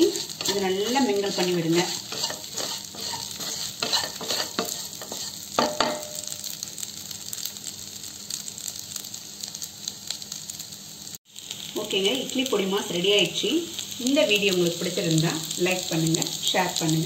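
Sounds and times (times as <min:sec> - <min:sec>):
wooden spatula scraping pan: 0:00.0 - 0:06.0
spatula knocking pan: 0:00.0 - 0:06.4
food sizzling in oil: 0:00.0 - 0:17.0.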